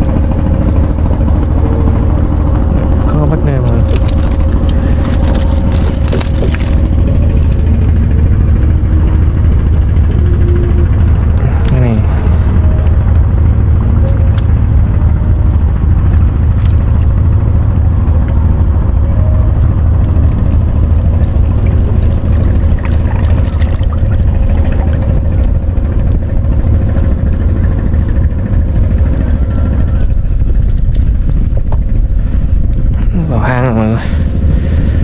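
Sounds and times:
loud low rumble: 0:00.0 - 0:35.0
light water splashes: 0:20.9 - 0:25.6.

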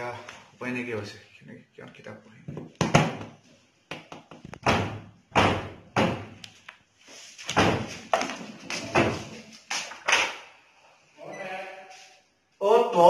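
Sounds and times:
thuds and knocks: 0:02.5 - 0:03.4, 0:04.0 - 0:06.4, 0:07.5 - 0:08.0.

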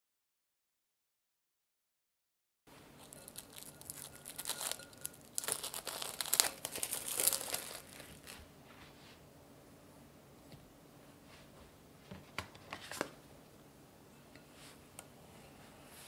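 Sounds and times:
plastic cling wrap crinkling: 0:03.0 - 0:08.5.

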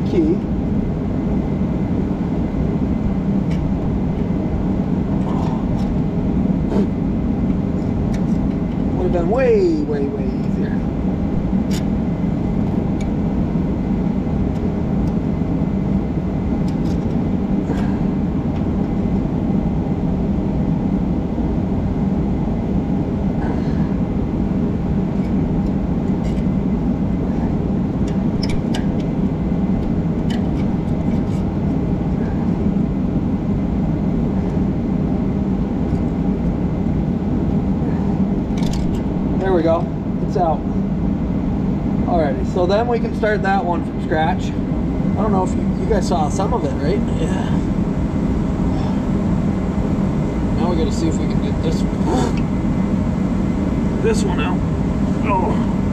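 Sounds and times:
steady droning hum: 0:00.0 - 0:55.9.

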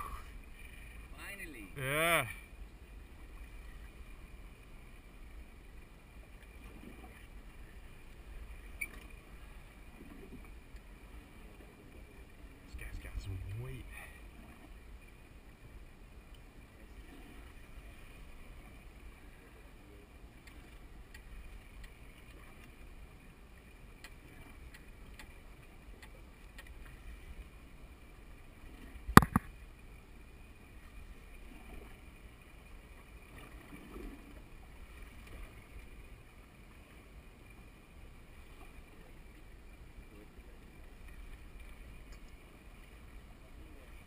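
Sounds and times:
boat engine rumble: 0:00.0 - 0:44.0
water noise: 0:00.0 - 0:44.0
faint ticks: 0:16.3 - 0:16.5, 0:20.4 - 0:22.9, 0:24.0 - 0:27.2, 0:41.0 - 0:42.4
sharp loud knock: 0:29.2 - 0:29.5.

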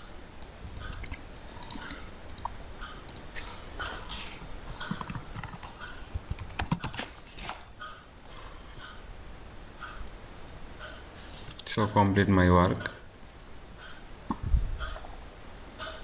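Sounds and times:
keyboard typing: 0:00.4 - 0:02.5, 0:03.1 - 0:07.6
mouse clicks: 0:00.4 - 0:03.5.

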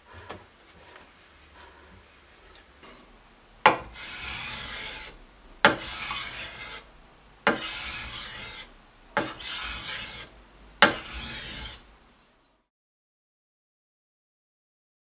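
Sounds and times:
blade scraping on whetstone: 0:03.7 - 0:06.9, 0:07.5 - 0:11.9.

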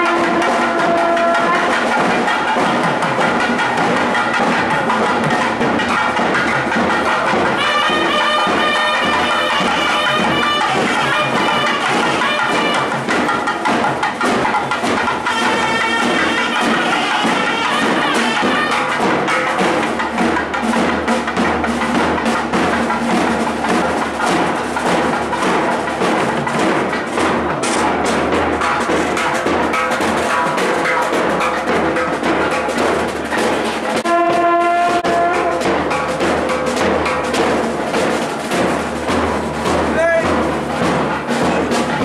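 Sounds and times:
reed pipe melody: 0:00.0 - 0:02.7, 0:07.2 - 0:13.2, 0:33.9 - 0:37.0
rapid drum strokes: 0:00.0 - 0:42.0.

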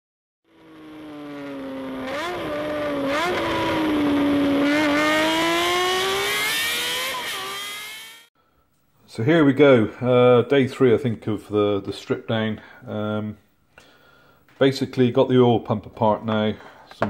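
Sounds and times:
engine revving high: 0:00.5 - 0:08.3.

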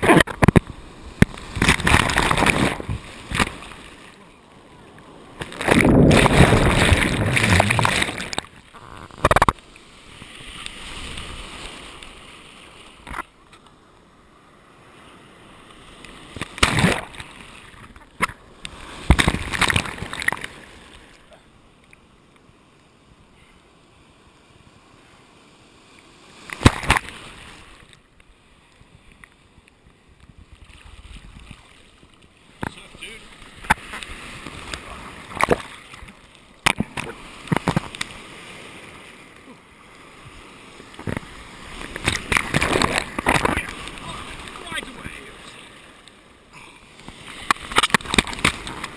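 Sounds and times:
sea water churning and splashing: 0:00.0 - 0:48.9.

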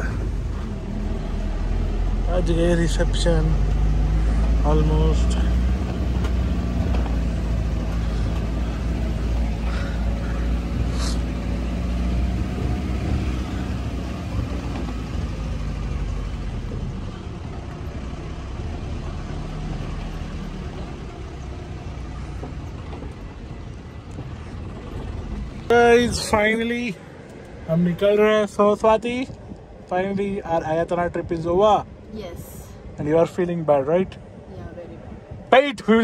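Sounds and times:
buggy ride rumble: 0:00.0 - 0:36.0.

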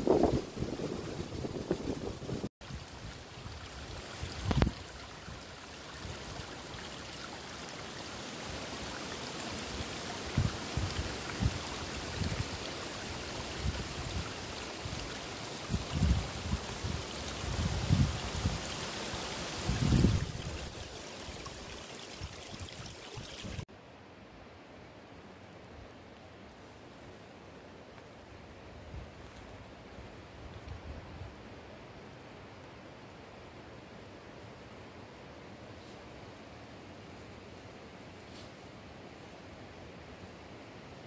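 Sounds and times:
brook rippling over stones: 0:01.5 - 0:23.7.

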